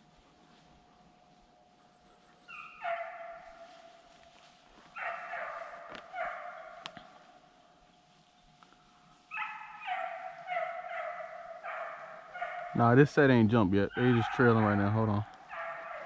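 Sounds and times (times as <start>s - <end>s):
hound baying: 1.9s - 7.3s, 9.1s - 13.2s, 13.8s - 16.0s.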